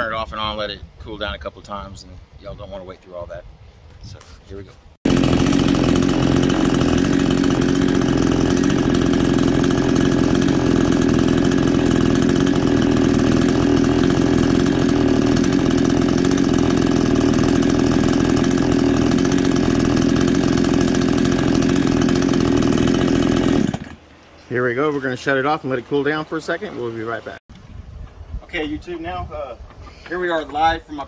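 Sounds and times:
chainsaw idling: 5.0s - 24.0s.

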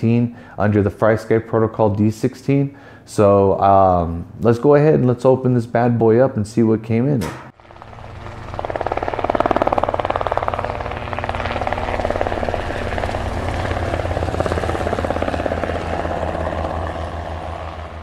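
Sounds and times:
helicopter rotor blades chopping: 7.2s - 18.0s
steady low hum: 7.2s - 18.0s.

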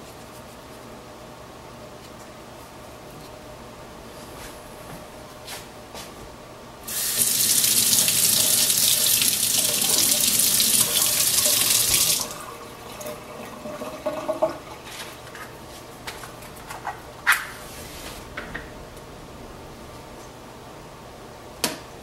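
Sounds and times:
faucet water splashing into sink: 6.9s - 12.4s.

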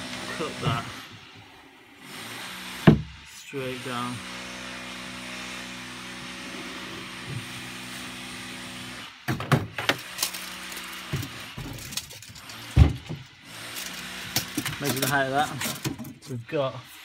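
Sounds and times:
knocks and thumps in plastic hull: 2.8s - 3.2s, 9.3s - 10.0s, 12.8s - 13.3s.

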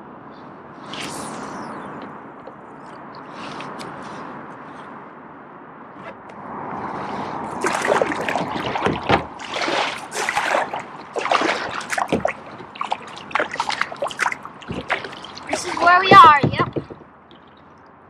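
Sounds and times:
paddle pulling through water: 7.0s - 17.7s
splashes and dripping: 7.4s - 18.0s.

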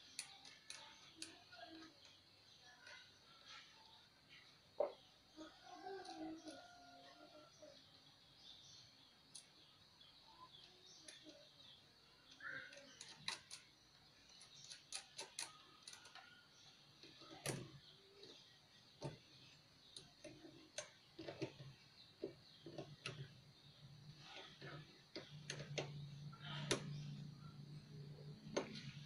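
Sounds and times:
faint clicks and taps: 0.0s - 5.1s, 9.3s - 29.0s.

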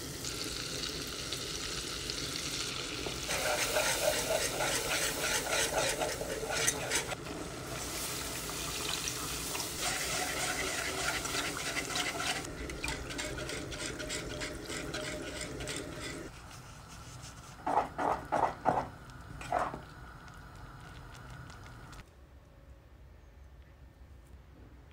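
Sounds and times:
roux sizzling in pot: 0.0s - 17.6s
wet whisk strokes: 3.3s - 7.2s, 9.5s - 17.6s.

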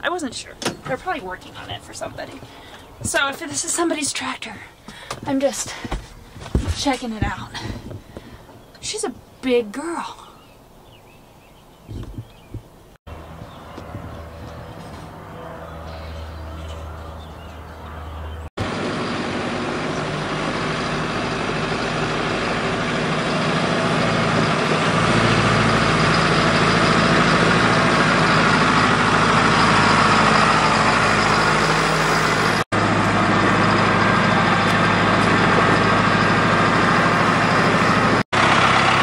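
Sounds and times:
tractor diesel engine running: 0.0s - 9.0s, 12.2s - 39.0s
tyres on gravel: 4.8s - 9.0s, 13.1s - 39.0s.

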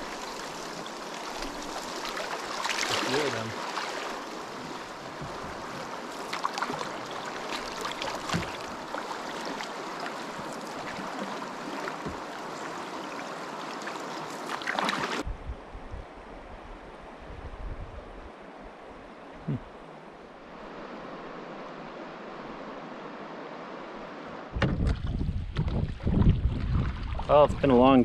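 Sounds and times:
river water splashing: 0.0s - 15.2s, 19.1s - 27.8s
wind rumbling on microphone: 15.2s - 23.0s, 24.5s - 28.0s.

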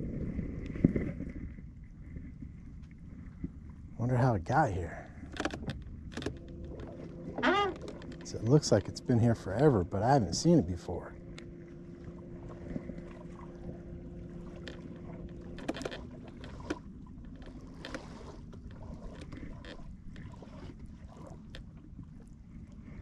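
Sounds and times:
wind noise: 0.0s - 9.1s
boat engine low hum: 0.0s - 23.0s
water lapping: 0.0s - 23.0s.

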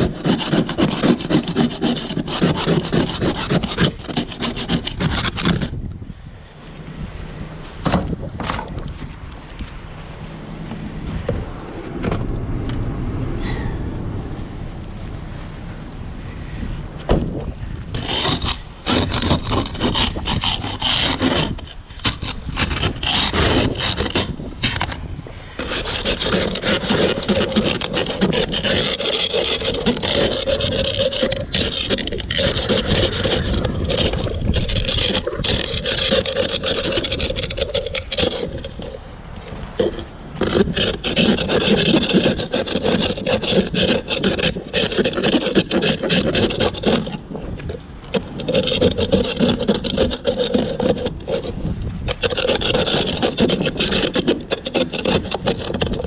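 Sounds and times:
ice scraper scraping glass: 0.0s - 5.8s, 17.9s - 56.0s.

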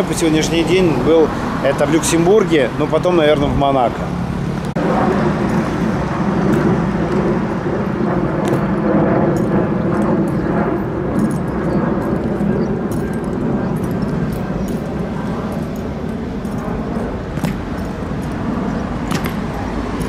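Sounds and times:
road traffic passing: 0.0s - 20.0s
boots clicking on cobblestones: 11.1s - 20.0s.

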